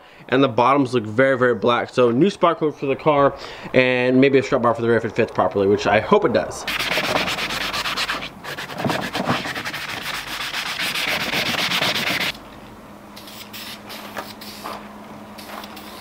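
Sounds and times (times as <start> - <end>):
faint steady hum: 0.0 - 16.0
sandpaper rasping on steel: 6.7 - 12.4, 15.4 - 16.0
aerosol spray can hissing: 9.6 - 12.4, 13.2 - 14.8, 15.4 - 16.0.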